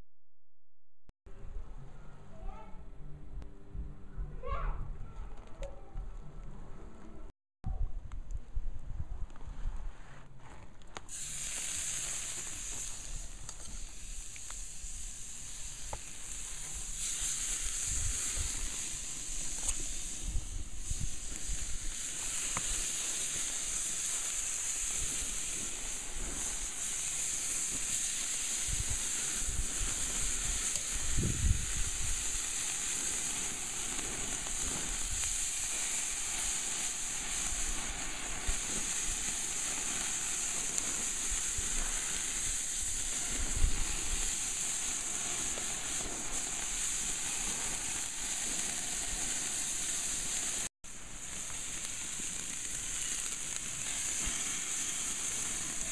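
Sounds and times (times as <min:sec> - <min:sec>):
meat sizzling on grill: 0:11.1 - 0:55.9.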